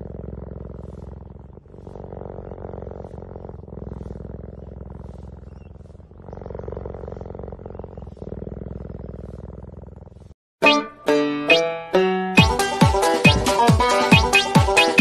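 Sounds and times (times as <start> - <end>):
big cat purring: 0.0 - 10.4.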